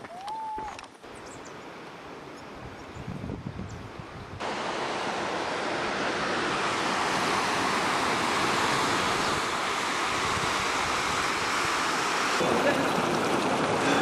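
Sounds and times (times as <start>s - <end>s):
stream rushing over rocks: 4.4s - 14.0s.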